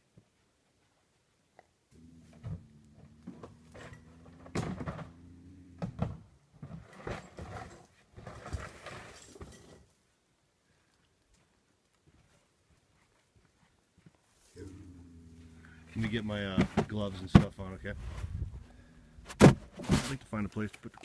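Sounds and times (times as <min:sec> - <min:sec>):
rustling: 0:00.2 - 0:10.1, 0:10.7 - 0:21.0
bobcat growling: 0:01.9 - 0:06.3, 0:14.5 - 0:19.5.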